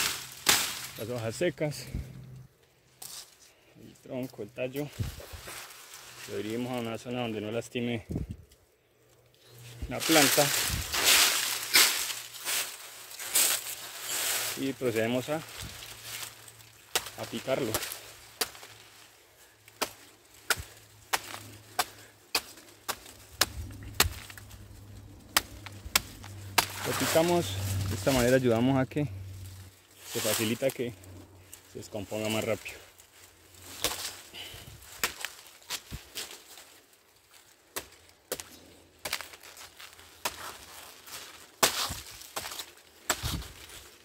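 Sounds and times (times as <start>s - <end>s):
machete chopping trunk: 0.0s - 1.0s, 16.9s - 18.8s, 19.7s - 24.6s, 25.2s - 28.3s, 33.7s - 36.4s, 37.7s - 43.6s.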